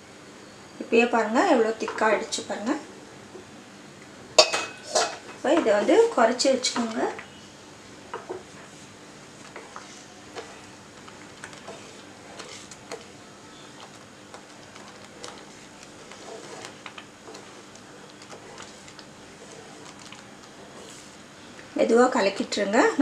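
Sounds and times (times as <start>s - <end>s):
spatula clicking and scraping pan: 9.4s - 13.1s, 13.8s - 21.1s.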